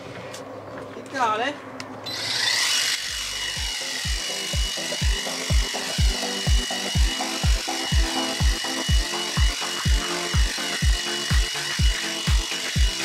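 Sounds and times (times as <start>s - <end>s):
hedge trimmer whining: 2.0s - 13.0s
electronic music with kick drum: 3.6s - 13.0s.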